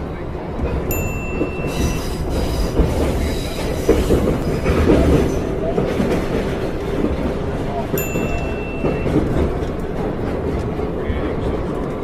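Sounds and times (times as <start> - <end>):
train rumbling on rails: 0.0 - 12.0.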